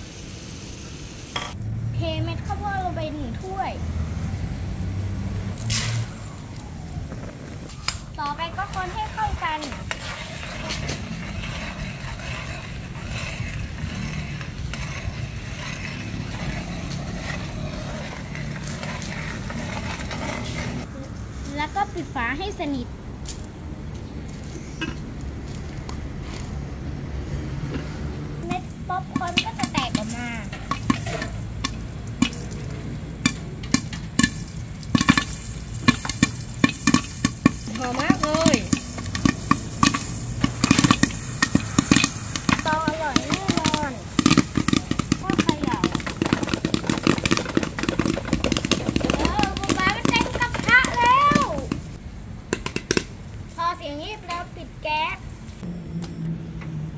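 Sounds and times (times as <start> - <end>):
frying sizzle: 0.0 - 1.6, 28.4 - 52.0
metal spoon stirring popcorn kernels: 7.7 - 20.9, 28.4 - 52.0.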